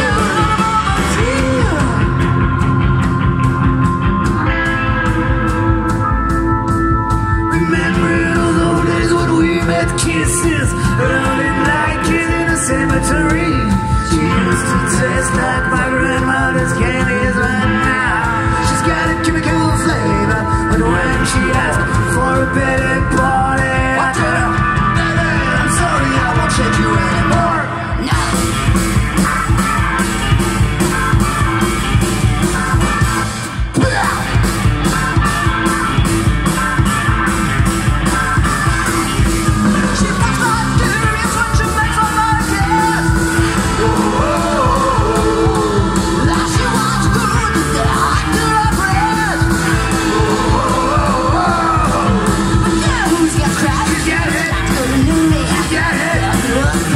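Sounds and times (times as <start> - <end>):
live rock and roll band: 0.0 - 56.9
woman singing: 39.8 - 56.9.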